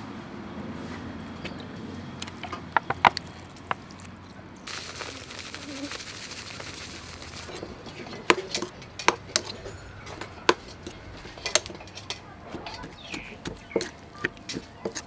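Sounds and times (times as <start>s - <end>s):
seasoning granules pattering: 3.2s - 8.4s.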